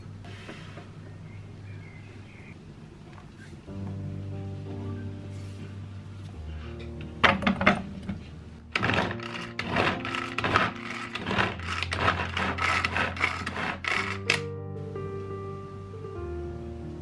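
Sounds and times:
soft background music: 1.3s - 17.0s
food chopper rattling carrot: 8.7s - 14.4s.

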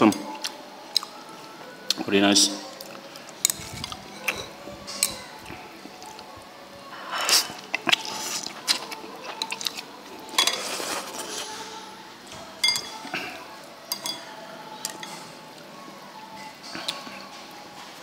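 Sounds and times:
chopsticks clinking against a bowl: 7.1s - 11.6s, 12.6s - 13.2s, 13.9s - 15.3s.

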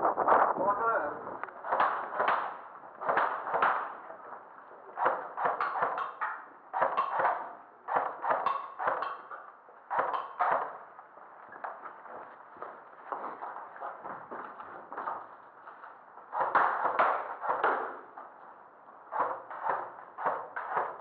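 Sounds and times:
airsoft rifle shots echoing: 1.6s - 4.0s, 5.0s - 10.9s.

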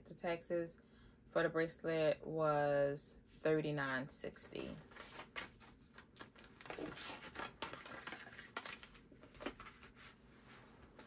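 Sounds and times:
paper receipt crinkling: 4.9s - 10.0s.

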